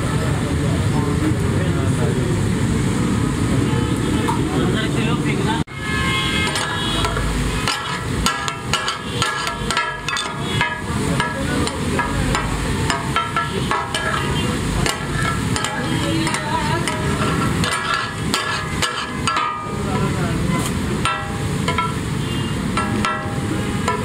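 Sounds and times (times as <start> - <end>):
metal spatulas clanging on griddle: 6.4 - 24.0.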